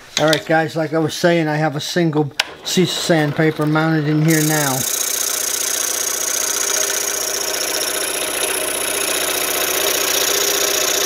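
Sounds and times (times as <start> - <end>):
scroll saw rapid chatter: 2.6 - 11.0.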